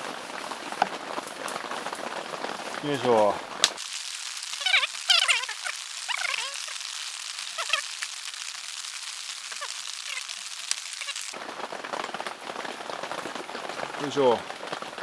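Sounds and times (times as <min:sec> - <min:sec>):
steady rain falling: 0:00.0 - 0:15.0
short chirping calls: 0:04.4 - 0:11.4.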